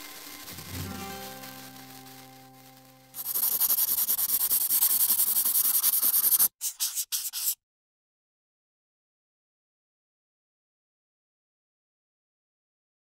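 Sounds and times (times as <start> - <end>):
quill pen scratching on paper: 3.2 - 7.6.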